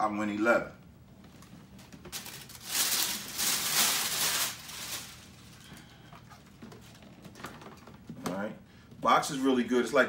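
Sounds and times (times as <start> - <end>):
paper and cardboard rustling: 2.1 - 7.0.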